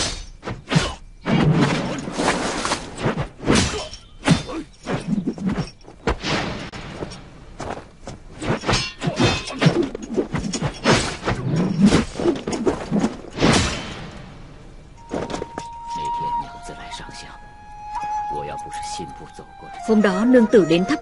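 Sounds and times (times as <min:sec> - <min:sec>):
staff striking ground: 0:00.0 - 0:15.7.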